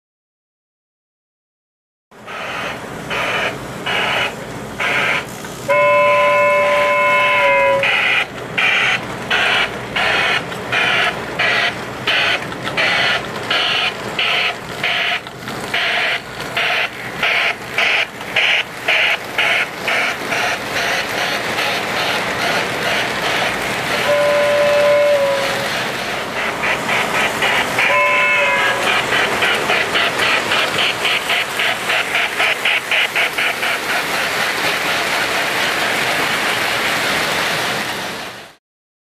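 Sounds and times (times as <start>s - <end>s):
wheels rumbling on track: 2.1s - 38.6s
toy steam locomotive chuffing: 2.2s - 38.6s
electronic steam whistle: 2.3s - 12.4s, 24.0s - 25.8s, 27.8s - 30.1s.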